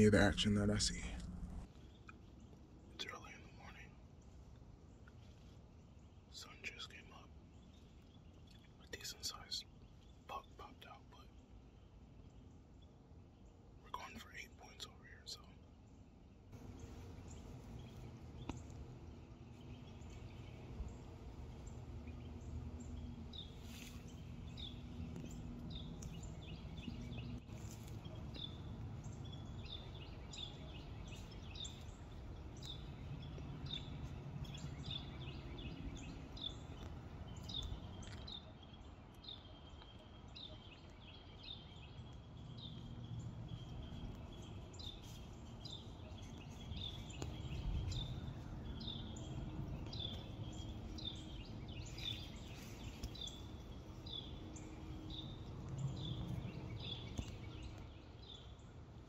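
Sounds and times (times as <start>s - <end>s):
low steady rumble: 0.0s - 2.9s, 16.6s - 38.2s
small birds chirping: 0.0s - 59.0s.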